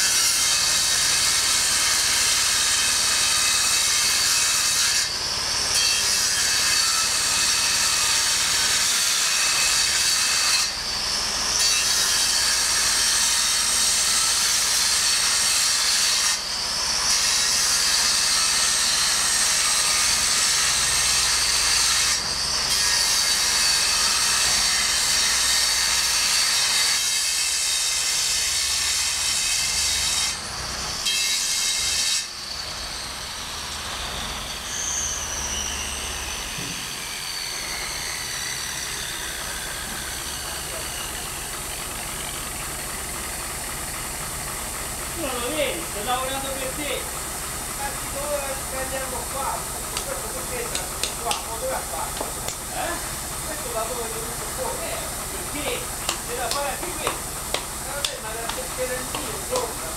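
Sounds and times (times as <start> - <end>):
angle grinder cutting stone: 0.0 - 59.9
grinder whine winding down: 32.4 - 59.9.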